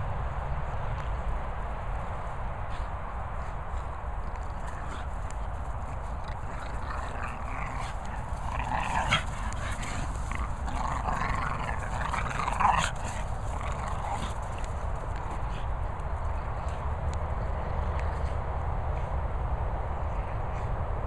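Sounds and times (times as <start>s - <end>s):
dogs growling in play: 4.2s - 16.9s.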